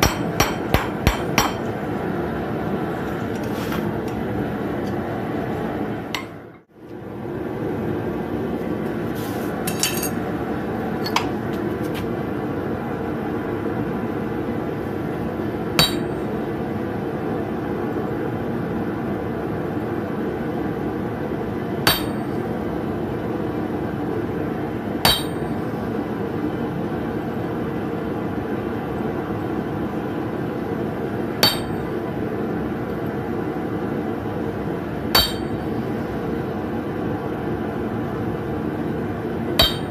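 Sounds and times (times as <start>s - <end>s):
hammer striking metal: 0.0s - 1.8s, 6.1s - 6.6s, 15.8s - 16.2s, 21.9s - 22.4s, 25.0s - 25.6s, 31.4s - 31.8s, 35.1s - 35.6s, 39.6s - 39.9s.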